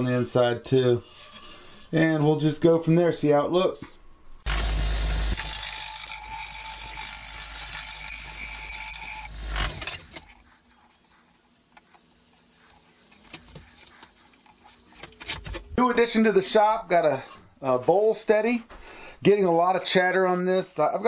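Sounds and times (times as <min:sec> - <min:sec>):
lathe tool scraping with ringing: 0:05.4 - 0:15.0.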